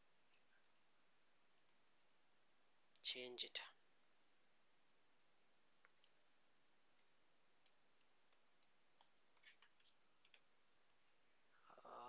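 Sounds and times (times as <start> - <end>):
keyboard typing clicks: 5.8 - 6.3, 7.0 - 10.5.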